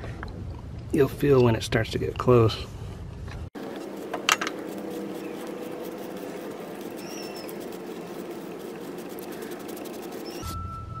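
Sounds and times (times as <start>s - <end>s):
outdoor background hum: 0.0s - 11.0s
bird chirping: 6.8s - 8.3s, 9.2s - 10.5s.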